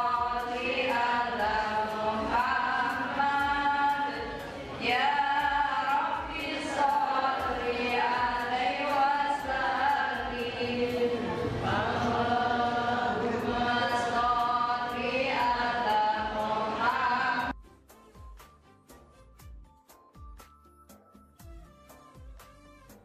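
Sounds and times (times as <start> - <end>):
voices chanting a melody: 6.4 - 17.5.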